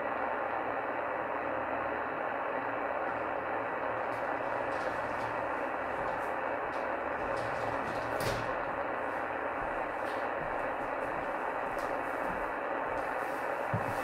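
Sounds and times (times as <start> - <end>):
radio static hiss: 0.0 - 14.0.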